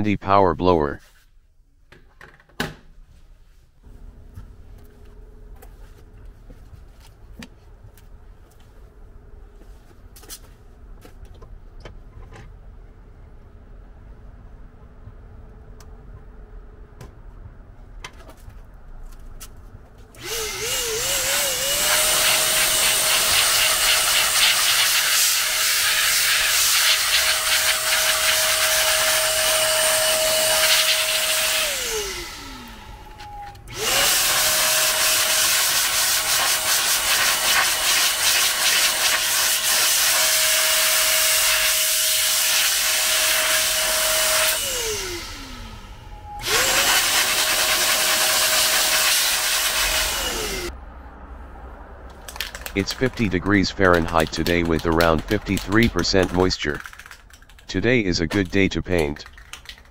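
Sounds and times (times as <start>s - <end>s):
electric air blower whine: 20.2s - 50.7s.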